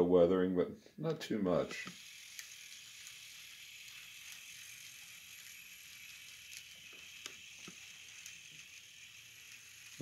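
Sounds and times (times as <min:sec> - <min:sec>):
model train motor whining: 0:01.7 - 0:10.0.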